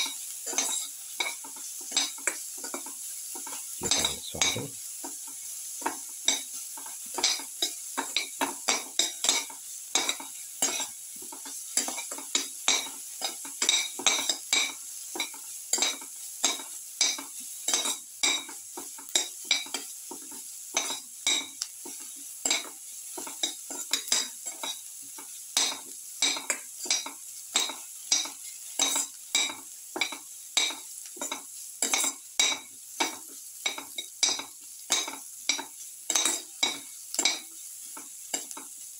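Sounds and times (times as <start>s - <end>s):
onions sizzling in a pan: 0.0s - 38.9s.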